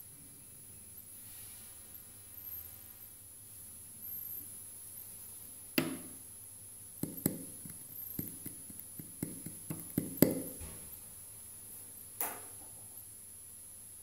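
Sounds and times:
sharp knocks and taps: 5.8s - 6.1s, 7.0s - 10.7s.

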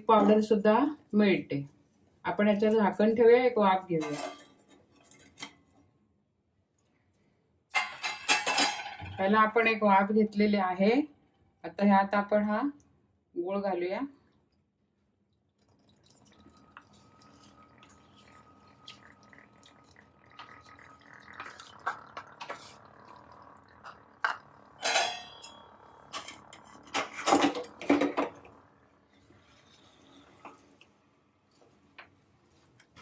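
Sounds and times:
syrup pouring into a pot: 15.4s - 24.8s.

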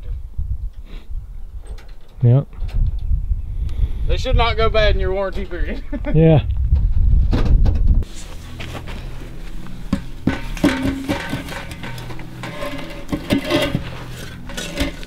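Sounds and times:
sharp knocks and clanks: 9.6s - 15.0s.

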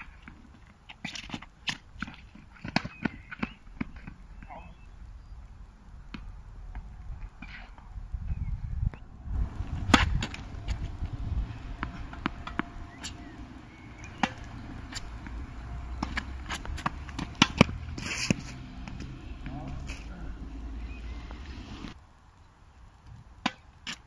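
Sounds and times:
tennis ball hit and bouncing: 1.0s - 4.2s, 9.4s - 22.0s, 23.4s - 24.0s
low steady rumble: 4.2s - 22.2s.

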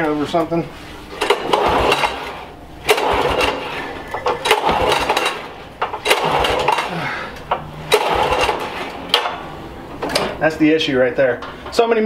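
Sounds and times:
mower pull-starter yanked: 1.1s - 9.4s
engine turning over: 1.1s - 10.4s.

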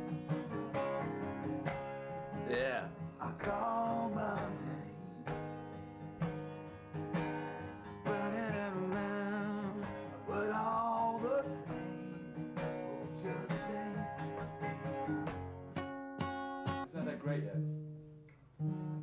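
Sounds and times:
acoustic guitar strumming: 0.0s - 19.0s
person singing: 2.5s - 5.3s, 8.1s - 14.6s.

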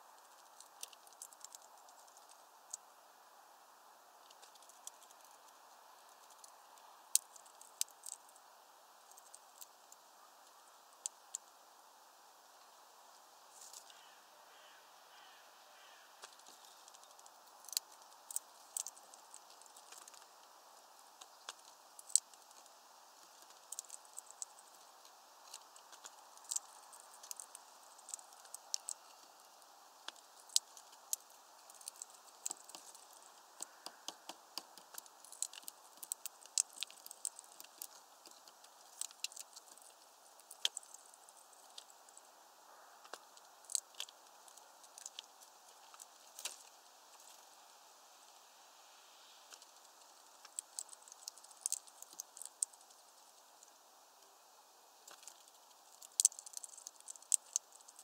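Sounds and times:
bird cracking seeds: 0.1s - 2.9s, 4.2s - 11.6s, 13.4s - 42.4s, 43.0s - 47.6s, 49.4s - 54.4s, 55.0s - 58.0s
seeds tapping on tray: 30.1s - 41.0s.

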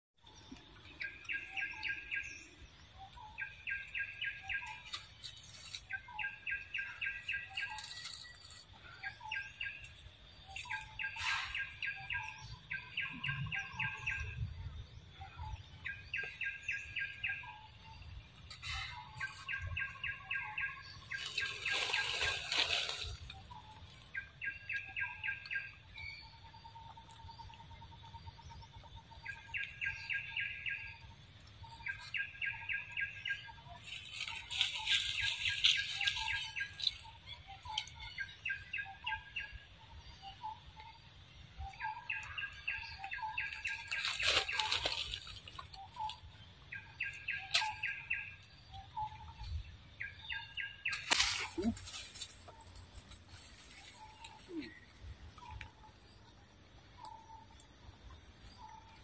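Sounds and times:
songbird trilling: 15.2s - 45.1s, 45.7s - 56.2s
rustling: 21.0s - 23.3s, 50.9s - 54.5s.

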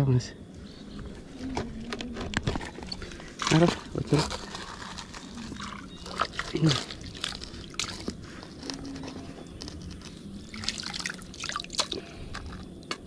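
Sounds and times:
water dripping and splashing: 10.5s - 12.1s.

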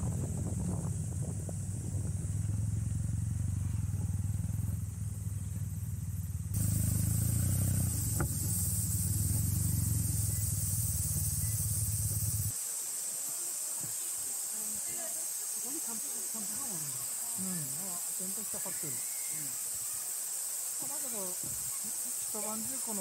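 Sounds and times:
motorcycle engine running: 0.0s - 12.5s
quiet steady hiss: 0.0s - 23.0s.

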